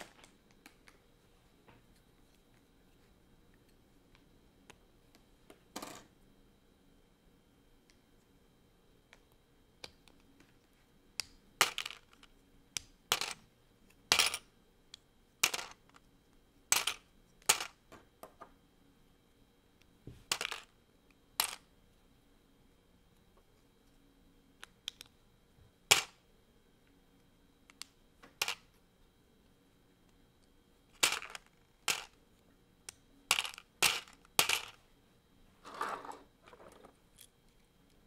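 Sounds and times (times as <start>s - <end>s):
plastic bricks clicking apart: 31.0s - 32.2s, 33.3s - 34.8s.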